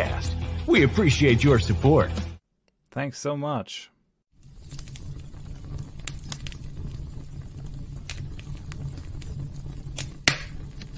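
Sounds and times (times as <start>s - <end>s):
low rumble: 4.4s - 10.9s
sharp clicks and crackles: 4.4s - 10.9s.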